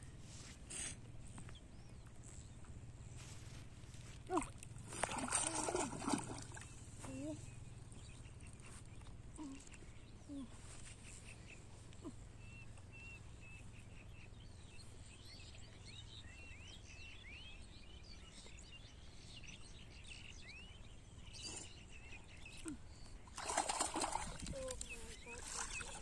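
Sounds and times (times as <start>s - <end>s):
birds chirping: 19.4s - 26.0s.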